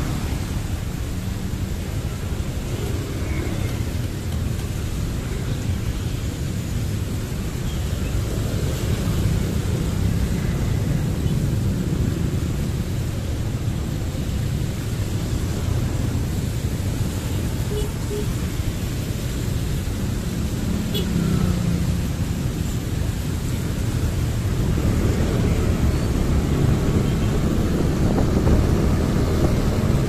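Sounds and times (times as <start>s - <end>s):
motorbike road noise: 0.0s - 30.0s
wind buffeting microphone: 24.4s - 30.0s.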